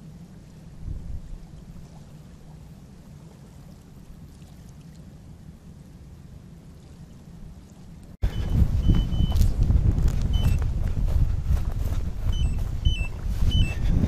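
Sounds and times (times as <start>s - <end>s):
faint outdoor hiss: 0.0s - 14.0s
wind rumble on microphone: 0.0s - 14.0s
short high-pitched beeps: 8.2s - 9.5s, 10.3s - 10.6s, 12.3s - 13.9s.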